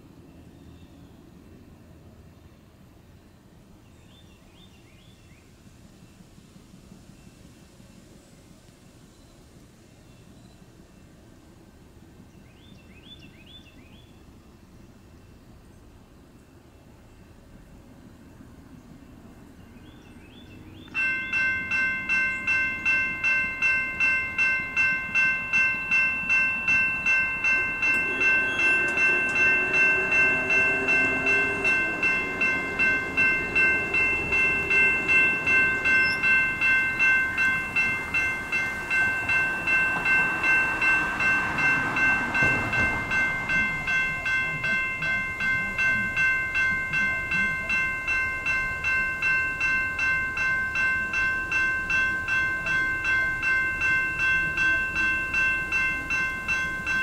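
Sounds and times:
railroad crossing bell ringing: 19.6 - 57.0
low wavering tones: 20.9 - 57.0.

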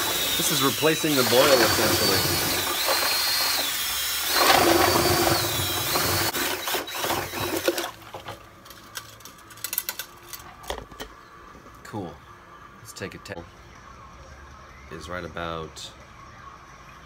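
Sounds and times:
cordless drill whine: 0.0 - 7.9.

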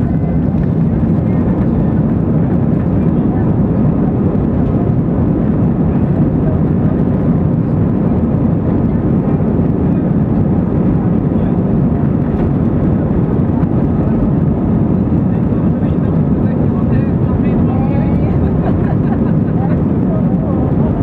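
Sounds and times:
jet engines at high thrust: 0.0 - 21.0.

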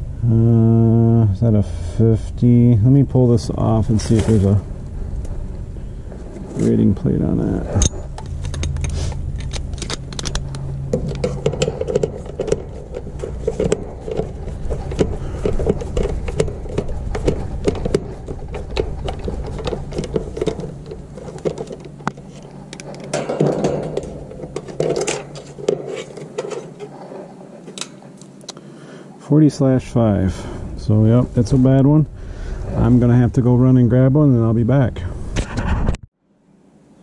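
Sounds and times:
low hum: 0.0 - 37.0
handling clicks and metallic rattles: 5.2 - 28.5.

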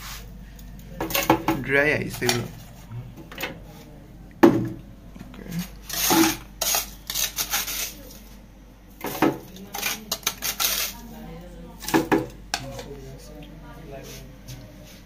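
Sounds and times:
metal spoon scraping ceramic plate: 5.6 - 8.0, 9.8 - 11.0.

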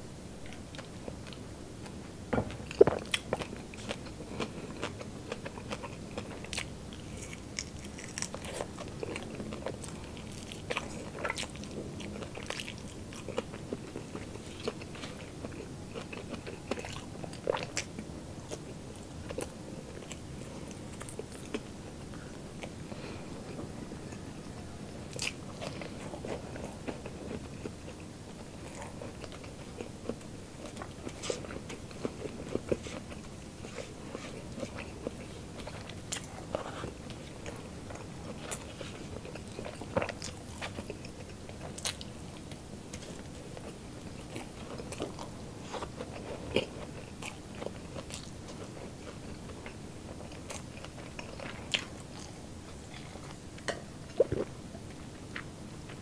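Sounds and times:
chewing: 0.4 - 56.0
crunching crispy food: 2.6 - 21.7.

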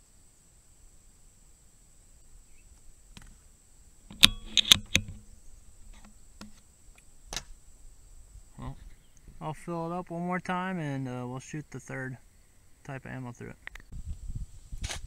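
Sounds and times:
sharp metallic clicks: 4.1 - 5.2.

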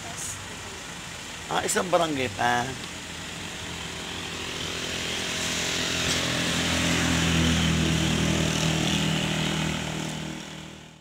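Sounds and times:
motorcycle engine passing: 4.0 - 11.0.

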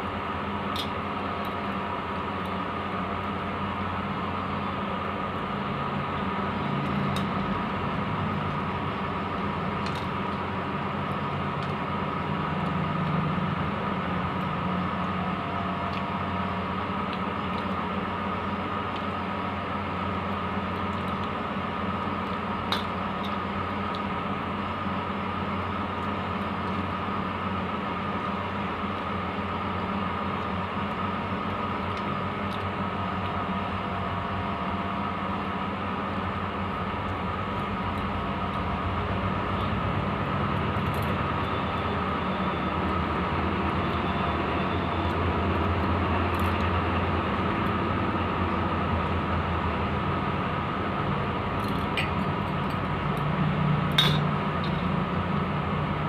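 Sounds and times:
low mechanical hum: 0.0 - 56.0.

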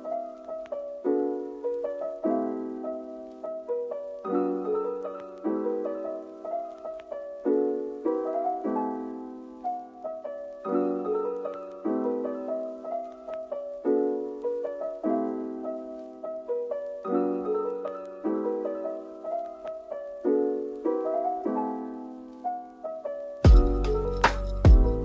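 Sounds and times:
piano playing gentle chords: 0.0 - 25.0.

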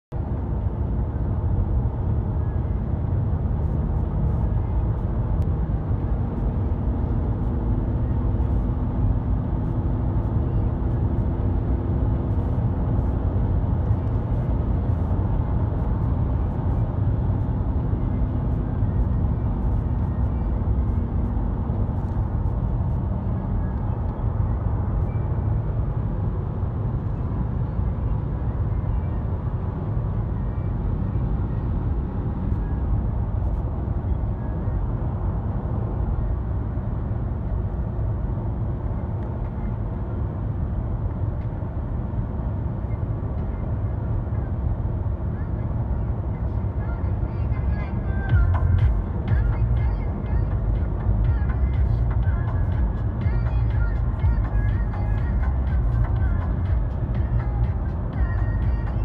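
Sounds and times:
road and wind noise: 0.0 - 59.0
car engine hum: 0.1 - 59.0.

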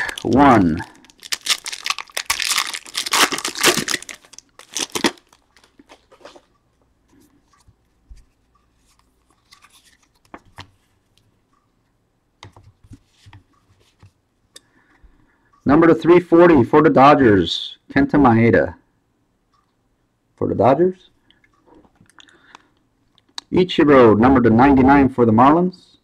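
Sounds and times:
wrapper tearing and crinkling: 0.0 - 6.1
cards rustling: 0.0 - 6.5, 8.8 - 10.8.

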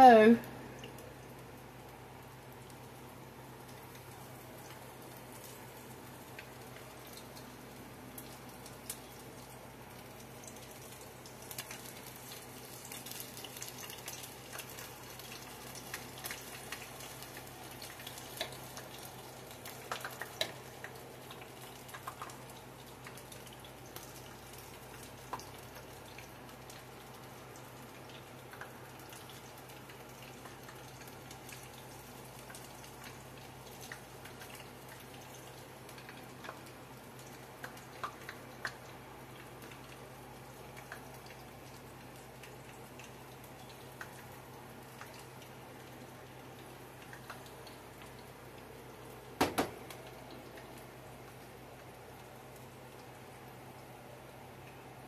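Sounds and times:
faint crackling of deep-frying oil: 0.0 - 55.0.

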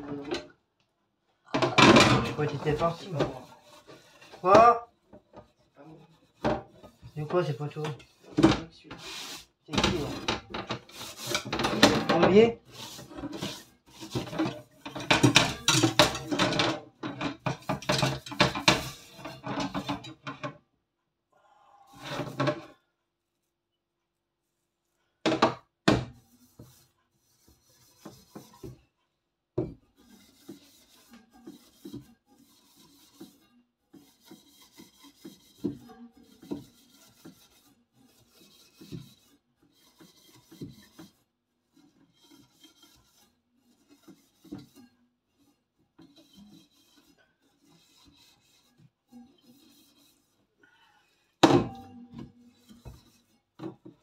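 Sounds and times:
steel wool scrubbing wire rack: 1.8 - 4.8, 9.0 - 20.3.

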